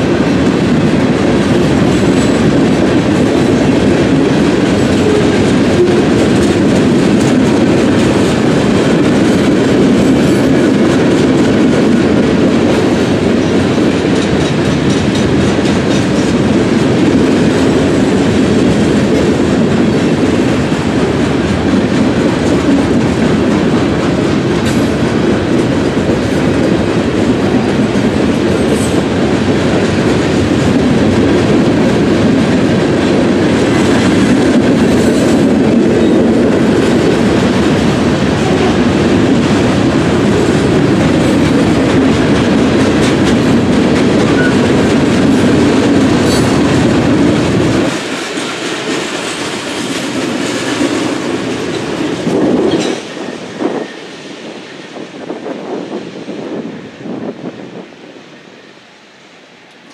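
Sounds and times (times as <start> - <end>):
freight train rolling past: 0.0 - 59.9.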